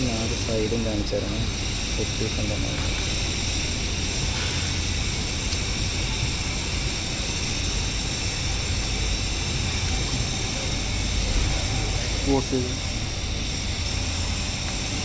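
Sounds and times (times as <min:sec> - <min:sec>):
low mechanical drone: 0:00.0 - 0:15.0.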